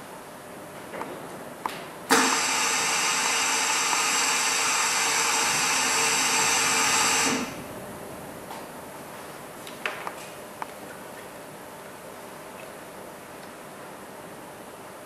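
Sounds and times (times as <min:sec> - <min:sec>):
small electric motor running: 0:02.2 - 0:07.6.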